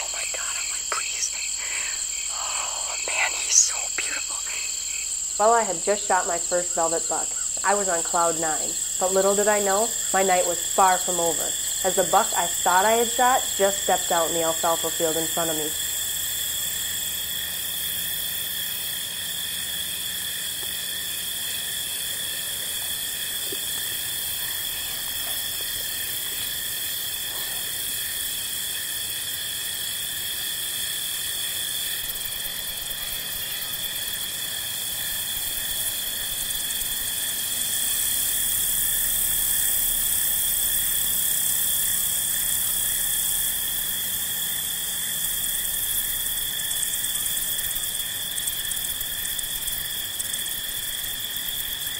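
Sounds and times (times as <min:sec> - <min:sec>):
crickets and insects trilling: 0:00.0 - 0:51.9.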